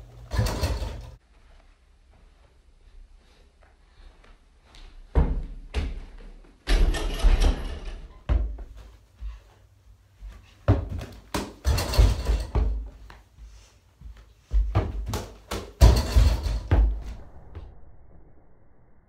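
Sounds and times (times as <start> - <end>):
hoop banging on wooden door: 10.7 - 12.9, 14.6 - 17.0.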